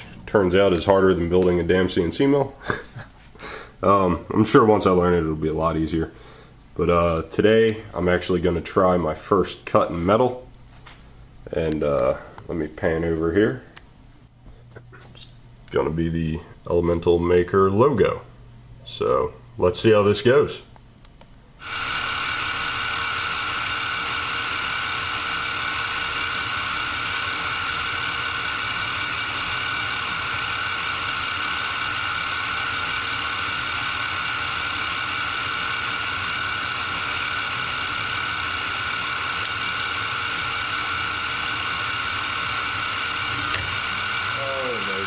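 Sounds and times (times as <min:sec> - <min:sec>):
end mill cutting metal: 0:21.6 - 0:45.0
milling machine spindle whine: 0:21.6 - 0:45.0.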